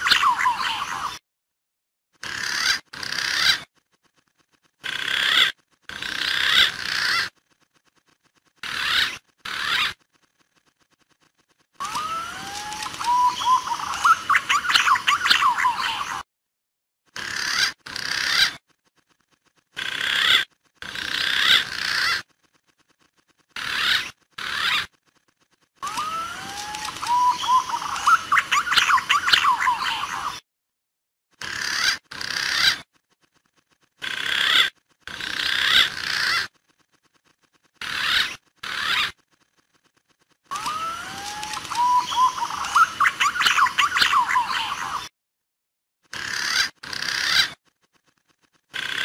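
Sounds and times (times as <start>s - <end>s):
recorded pigeon calls: 0.0s - 1.2s, 11.8s - 16.2s, 25.8s - 30.4s, 40.5s - 45.1s.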